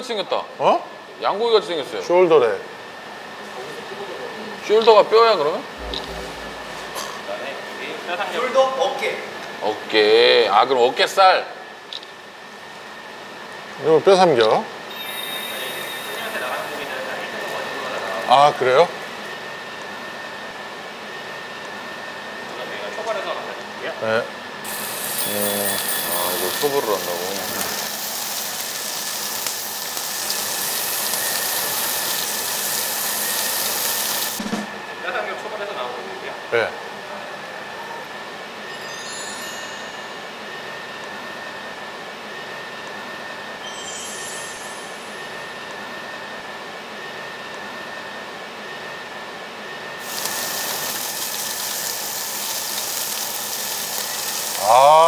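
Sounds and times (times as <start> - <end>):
steady hum with high whine: 0.0 - 50.1
meat sizzling on a grill: 24.7 - 34.4, 50.0 - 55.0.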